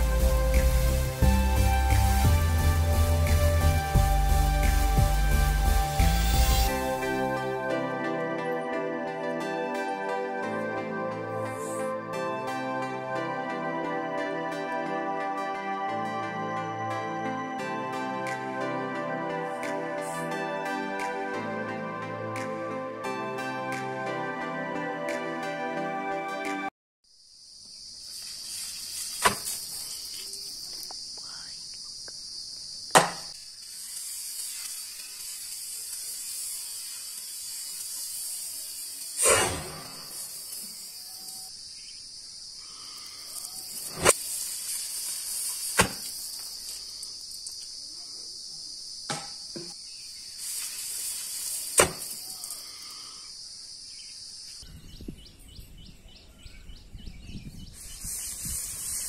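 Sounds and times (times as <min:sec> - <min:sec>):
crickets chirping: 0:09.4 - 0:20.9, 0:27.0 - 0:59.0
low wind rumble on microphone: 0:54.6 - 0:59.0.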